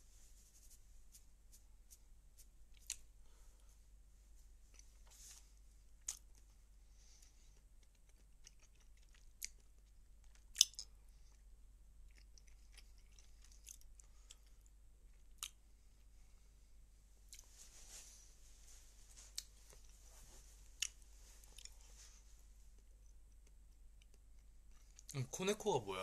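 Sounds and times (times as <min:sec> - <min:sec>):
person chewing food: 0:02.7 - 0:03.1, 0:04.7 - 0:05.0, 0:06.0 - 0:06.6, 0:07.2 - 0:15.6, 0:17.3 - 0:17.5, 0:19.3 - 0:20.0, 0:20.7 - 0:21.9, 0:22.8 - 0:25.1.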